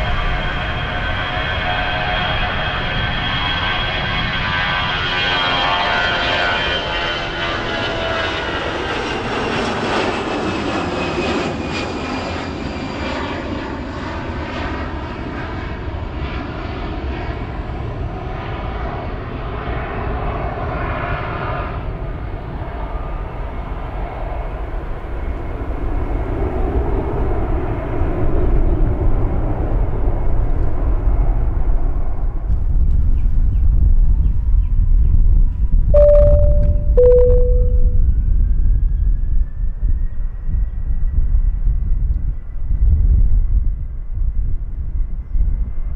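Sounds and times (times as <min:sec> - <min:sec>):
low rumble: 0:36.0 - 0:38.2.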